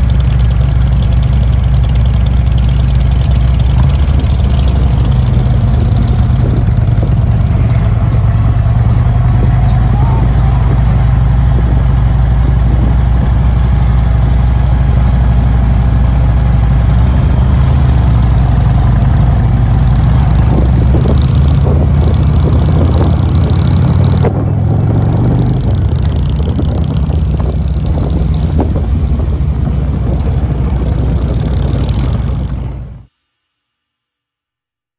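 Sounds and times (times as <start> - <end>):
motorcycle engines running: 0.0 - 33.1.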